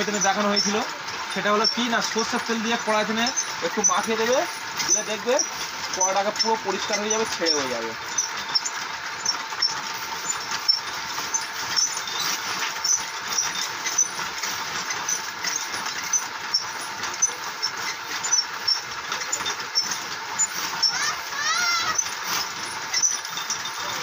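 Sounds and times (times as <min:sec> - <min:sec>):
roasting machine rattling hiss: 0:00.0 - 0:24.0
rice crackling: 0:08.0 - 0:24.0.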